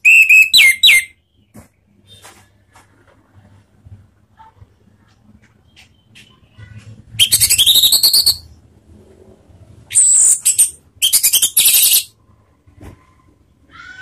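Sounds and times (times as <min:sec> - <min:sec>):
thrush rapid trilling song: 0:07.2 - 0:08.5.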